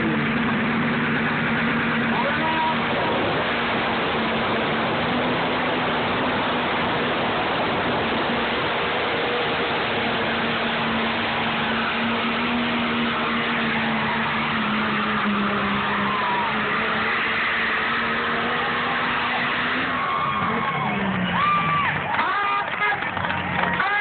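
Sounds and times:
diesel truck engine under load: 0.0s - 24.0s.

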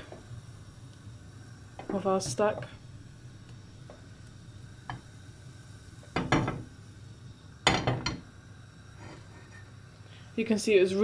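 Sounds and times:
low steady hiss: 0.0s - 11.0s
frying pan clattering on grate: 6.1s - 6.7s, 7.6s - 8.2s.

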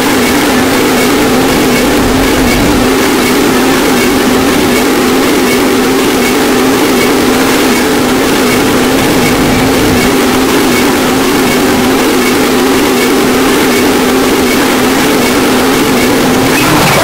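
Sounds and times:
harsh distorted noise music: 15.8s - 17.0s.

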